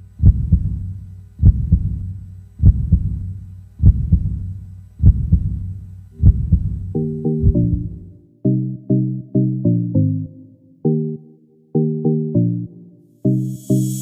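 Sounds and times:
low hum: 0.0 - 8.2
heartbeat thumps: 0.2 - 8.1.

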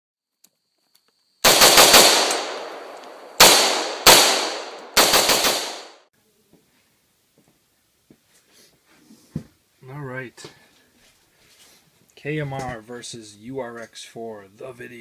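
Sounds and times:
rifle shots with echo: 1.4 - 6.1.

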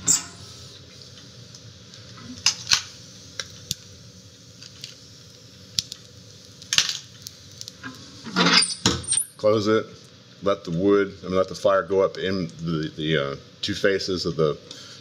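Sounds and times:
stove door metallic clicks: 0.0 - 0.4
low steady background noise: 0.0 - 15.0.

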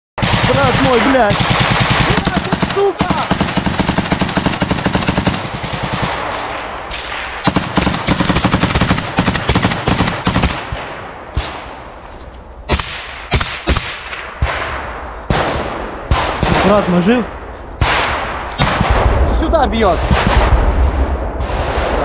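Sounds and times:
automatic gunfire bursts: 0.2 - 6.2, 7.4 - 10.8
single gunshots: 0.2 - 11.9, 12.7 - 22.0.

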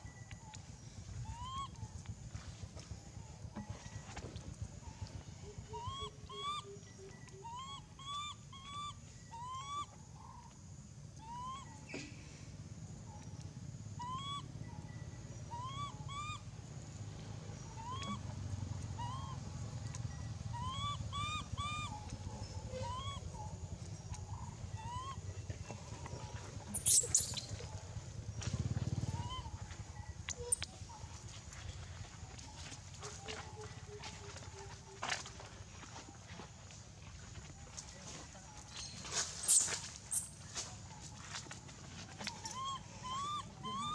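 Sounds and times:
baby monkey coo calls: 1.2 - 2.1, 5.1 - 12.1, 14.0 - 16.5, 17.6 - 27.8, 28.9 - 31.2, 39.2 - 40.4, 42.2 - 43.9
monkey screaming: 1.3 - 1.8, 5.8 - 6.8, 7.4 - 9.9, 11.2 - 11.7, 14.0 - 14.5, 15.5 - 16.4, 17.8 - 18.2, 19.0 - 19.4, 20.5 - 22.1, 22.7 - 23.4, 24.8 - 25.2, 26.7 - 27.5, 42.3 - 43.9.

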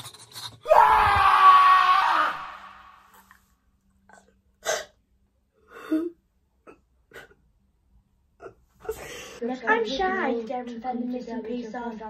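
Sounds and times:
person sobbing and gasping: 5.6 - 7.4.

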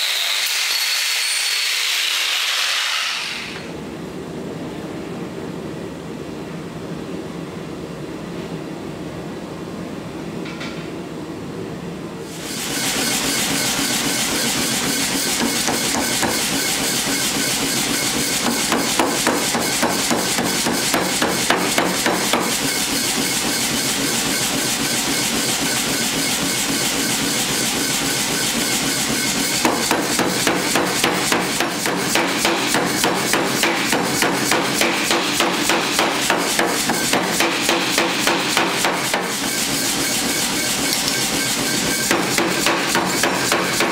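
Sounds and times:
forge burner rushing: 12.3 - 43.9
power hammer striking steel: 12.7 - 43.9.

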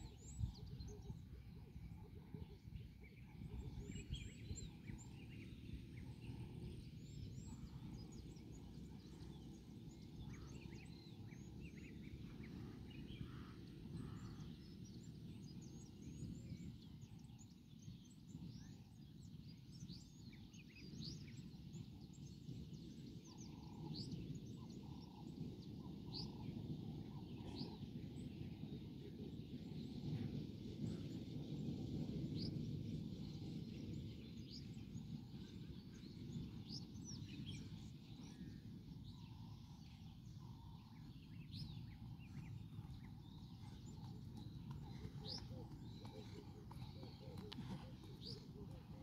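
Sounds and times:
small birds chirping: 0.0 - 49.0
steady low rumble: 20.9 - 49.0.

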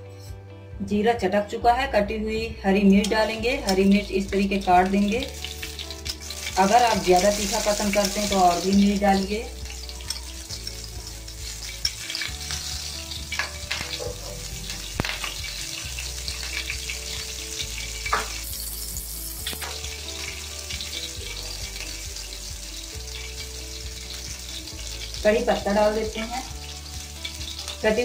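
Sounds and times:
oil sizzling in a pan: 3.0 - 28.0
sharp pops: 19.4 - 19.8.

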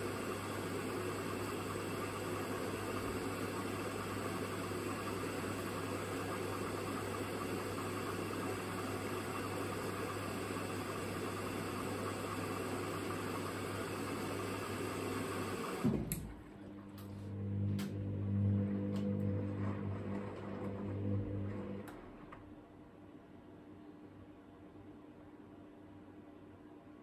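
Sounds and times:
water rushing into washing machine: 0.0 - 16.6, 17.3 - 22.3.

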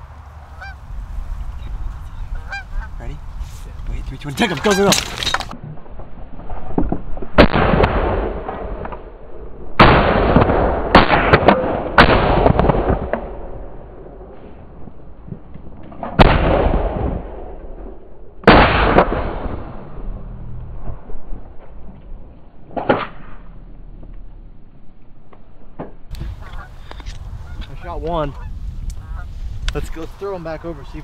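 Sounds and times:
shotgun blasts with echo: 7.3 - 9.1, 9.8 - 13.6, 16.1 - 20.0.

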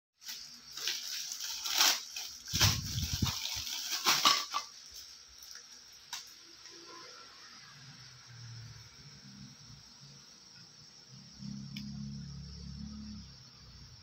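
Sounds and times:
plastic packaging crinkling: 0.2 - 6.2.

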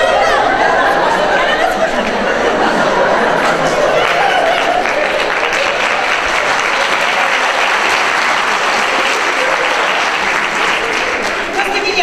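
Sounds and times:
audience applauding: 2.8 - 12.0.

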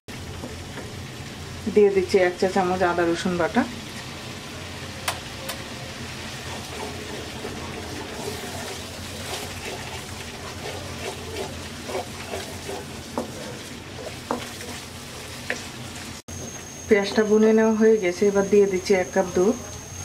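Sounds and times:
paste frying and bubbling in oil: 0.1 - 17.0
wooden spatula scraping a pan: 6.3 - 16.6.

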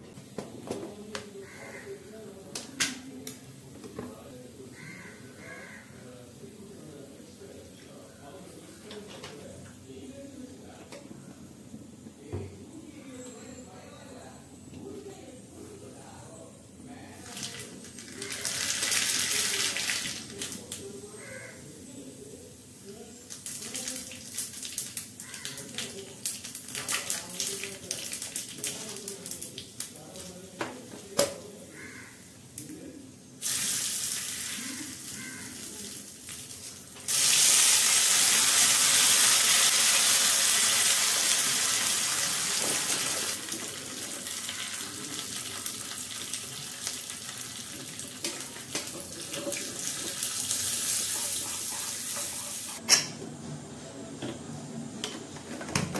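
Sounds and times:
loud sizzle in oil: 17.2 - 20.7, 22.6 - 30.4, 33.4 - 52.8
seeds crackling in hot oil: 17.2 - 21.0, 22.6 - 30.6, 33.4 - 52.8.

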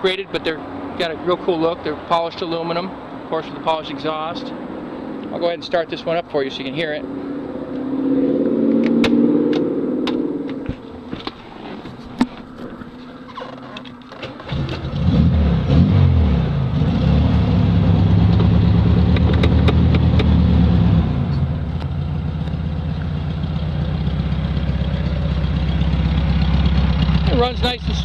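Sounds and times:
car engine starting and idling: 8.7 - 28.0.

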